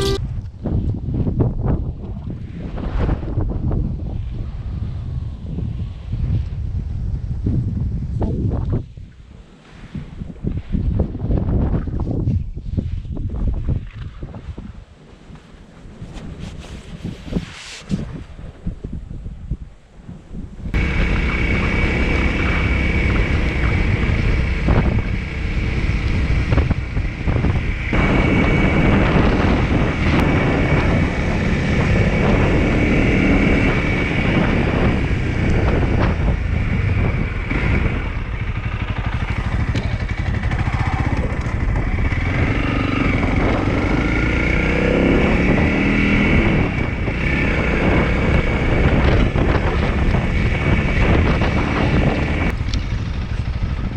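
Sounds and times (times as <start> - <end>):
motorcycle engine running: 0.0 - 0.2, 20.7 - 53.9
wind buffeting microphone: 0.0 - 53.9.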